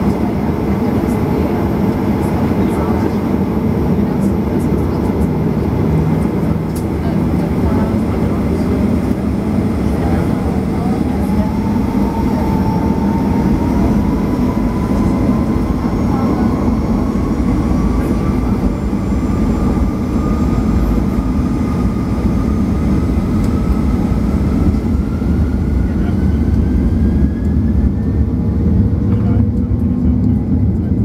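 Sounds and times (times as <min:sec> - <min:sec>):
jet engines rumbling and whining: 0:00.0 - 0:31.0.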